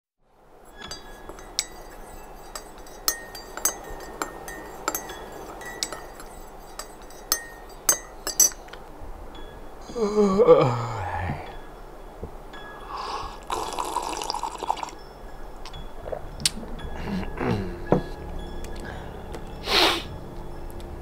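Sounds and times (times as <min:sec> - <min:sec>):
teaspoon clinking in ceramic mug: 0:00.7 - 0:08.7.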